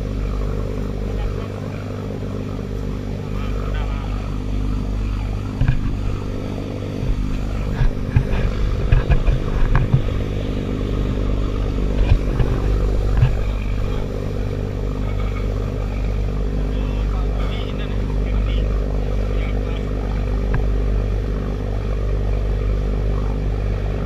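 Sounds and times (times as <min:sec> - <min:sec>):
boat engines droning: 0:00.0 - 0:24.0
water rushing along hull: 0:00.0 - 0:24.0
low thumps: 0:03.2 - 0:19.3.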